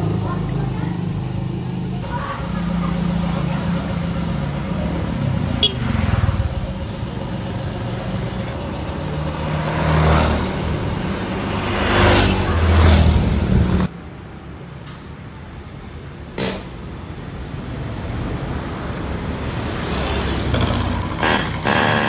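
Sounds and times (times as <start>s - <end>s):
motorcycles passing: 0.0s - 13.9s, 17.8s - 22.0s
traffic engine rumble: 0.0s - 22.0s.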